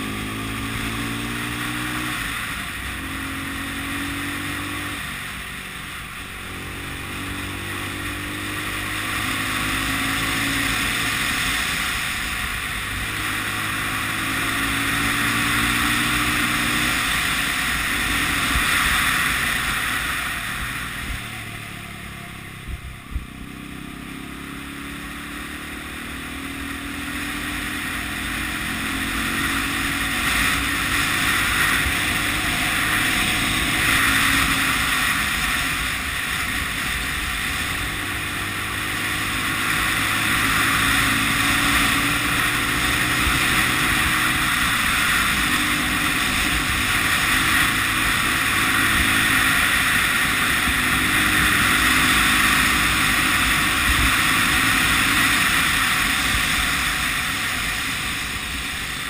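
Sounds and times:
motorcycle engine accelerating: 0.0 - 59.0
wind rush on microphone: 3.6 - 23.8.

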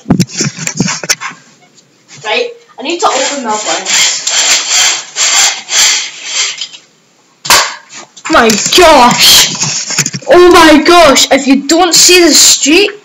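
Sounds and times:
blind slats sliding and rubbing: 2.2 - 6.8.

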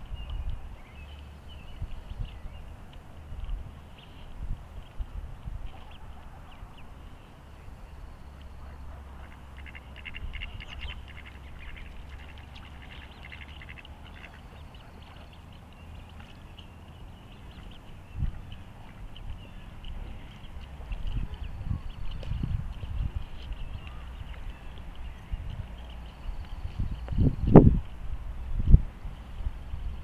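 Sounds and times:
steady low rumble: 0.0 - 30.0
ducks calling: 8.4 - 26.3.

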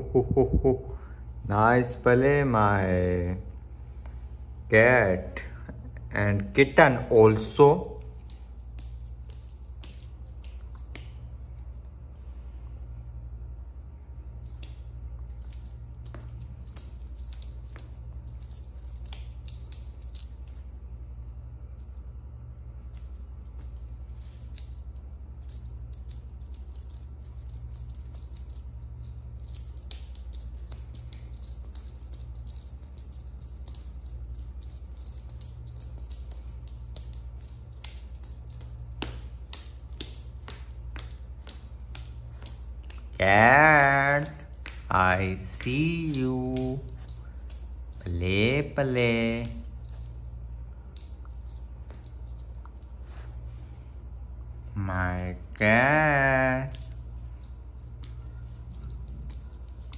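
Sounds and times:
steady low hum: 0.0 - 59.9
toy clicks and rattles on tile: 7.8 - 11.8, 14.4 - 20.7, 22.9 - 53.2, 54.8 - 59.9.

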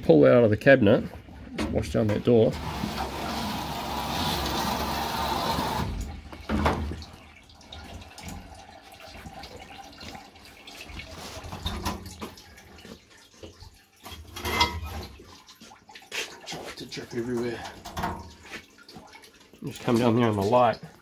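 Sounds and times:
water spraying: 2.5 - 6.1
water dripping: 5.9 - 21.0.

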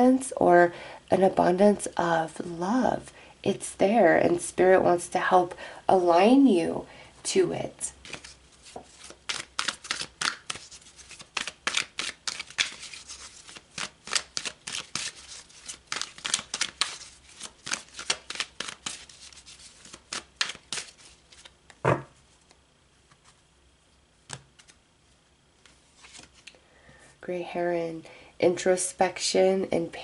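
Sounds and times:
cards being shuffled: 8.0 - 23.4, 24.2 - 24.8, 25.6 - 26.6
loud knock: 21.8 - 22.1.

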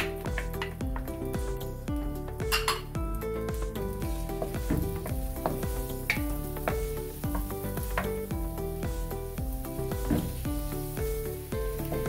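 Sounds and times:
background music: 0.0 - 12.0
garlic sizzling in butter: 3.4 - 12.0
wooden spatula stirring: 3.5 - 12.0.

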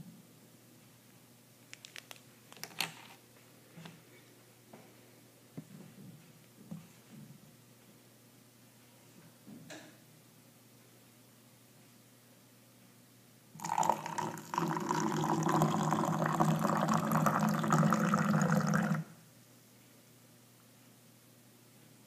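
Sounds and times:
water pouring into metal can: 13.6 - 19.0.

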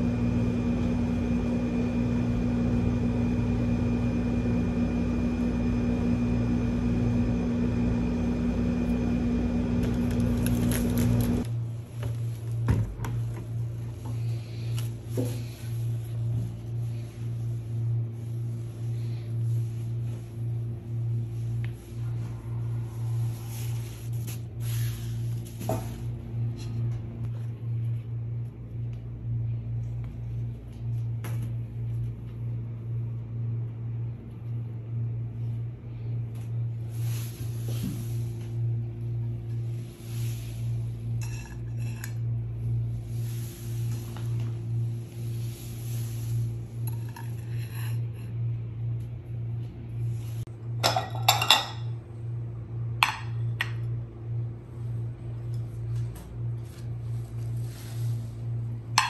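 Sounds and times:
steady low hum: 0.0 - 59.0
ceramic dishes clinking: 50.8 - 51.9.

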